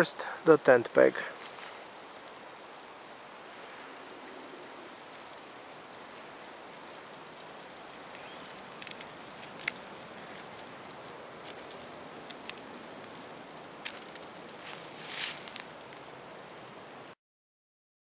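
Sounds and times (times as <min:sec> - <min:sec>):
steady hiss: 0:00.0 - 0:17.2.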